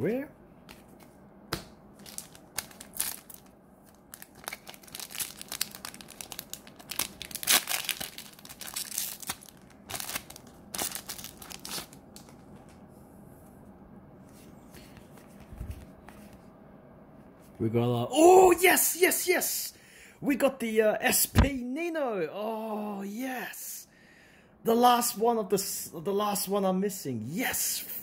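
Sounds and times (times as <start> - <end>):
foil wrapper tearing and crinkling: 2.0 - 12.3.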